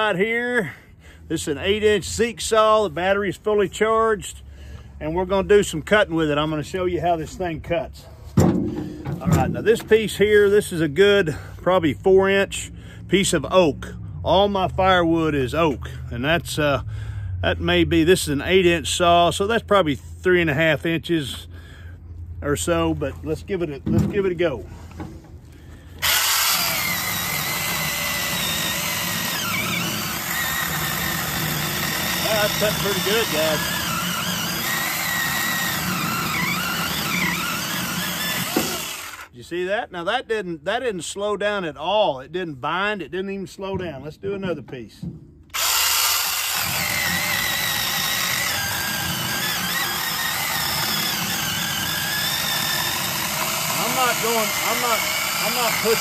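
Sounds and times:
chainsaw cutting log: 26.0 - 39.3, 45.5 - 56.0.

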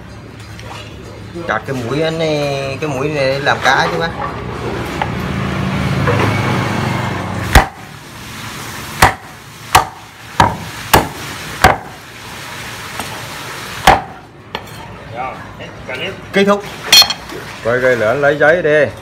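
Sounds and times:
cleaver chopping meat and bone: 7.5 - 7.9, 9.0 - 12.0, 13.8 - 14.2.

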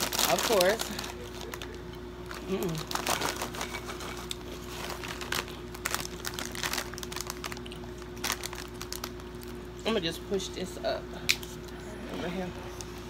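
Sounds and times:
plastic bag crinkling: 0.0 - 9.7
steady hum: 0.0 - 13.0
crunchy chewing: 1.1 - 9.6.

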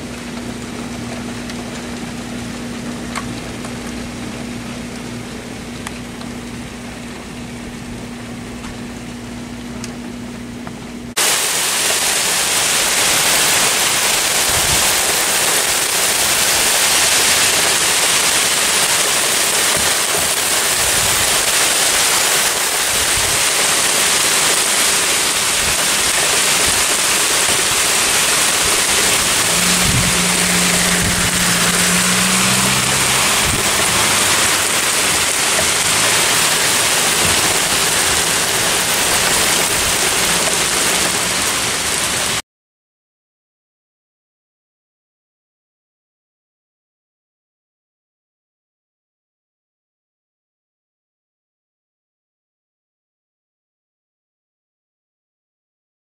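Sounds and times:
hail pelting the ground: 11.2 - 42.4
low hum: 28.5 - 41.7.

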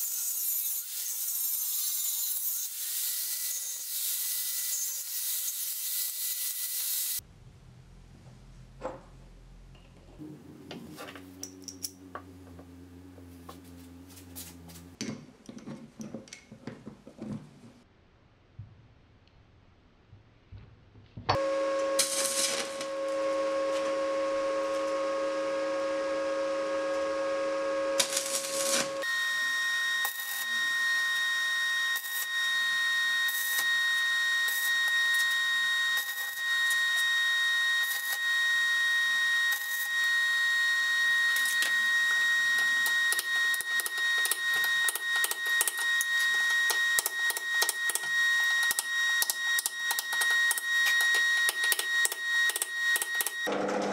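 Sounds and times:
high steady whine: 7.2 - 15.0, 21.4 - 53.3
steady humming tone: 7.2 - 15.0, 21.4 - 37.0.

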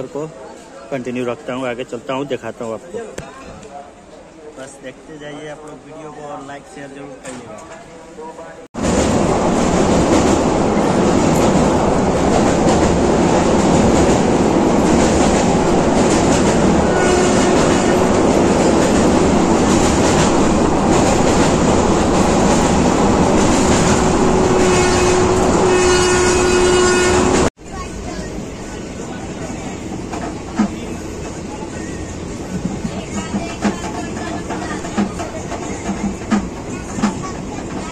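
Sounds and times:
train wheels rumbling and rattling: 8.8 - 37.9.

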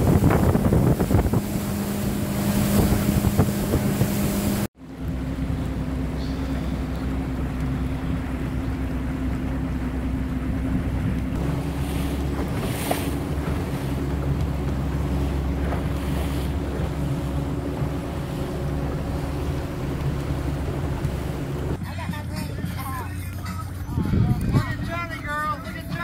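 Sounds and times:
hissing water splashes: 0.0 - 4.7, 5.5 - 21.8
wind on microphone: 0.0 - 4.7, 23.6 - 25.3
boat engine drone: 0.0 - 26.0
water rushing past hull: 0.0 - 26.0.

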